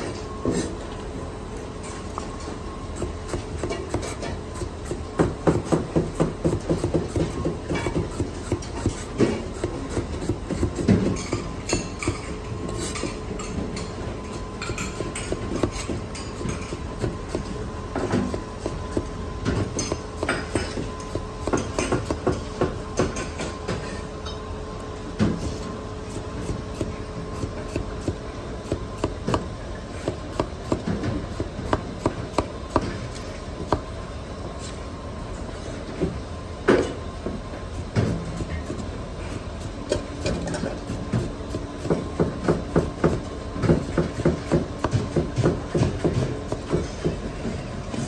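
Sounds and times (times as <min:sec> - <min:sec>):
cleaver chopping on cutting board: 0:41.1 - 0:47.2.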